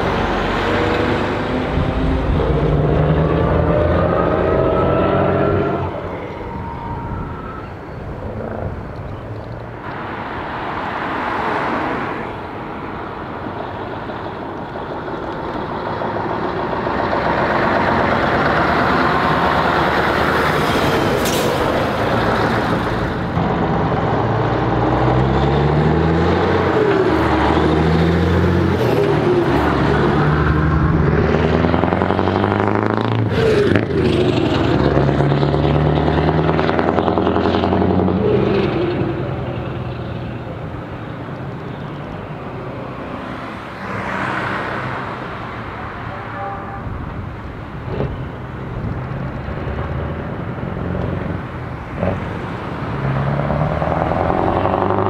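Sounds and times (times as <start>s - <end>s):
truck accelerating through gears: 0.0s - 9.0s, 14.0s - 40.9s, 47.8s - 55.0s
diesel trucks driving past: 0.0s - 55.0s.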